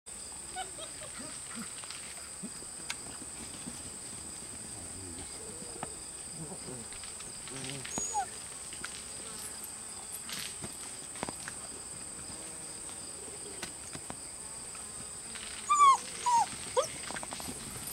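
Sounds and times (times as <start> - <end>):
insects droning: 0.1 - 17.9
puppies yipping and whining: 0.5 - 1.8, 7.8 - 8.4, 15.6 - 17.9.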